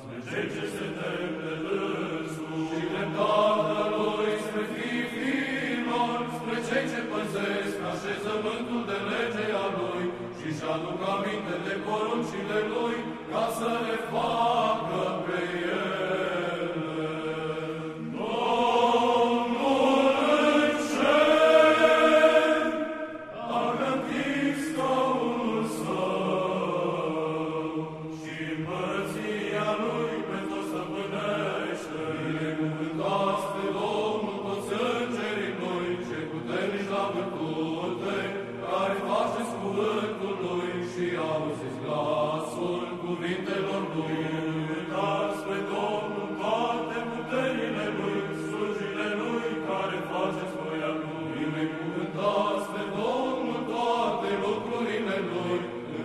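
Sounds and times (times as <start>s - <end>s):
choir chanting: 0.0s - 56.0s.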